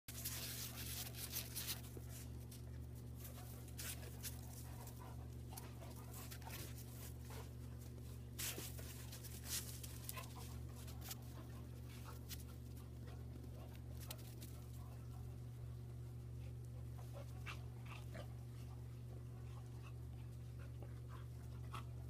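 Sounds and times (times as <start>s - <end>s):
low steady hum: 0.1s - 22.0s
dogs panting: 0.2s - 22.0s
scuffing in snow: 8.4s - 10.3s.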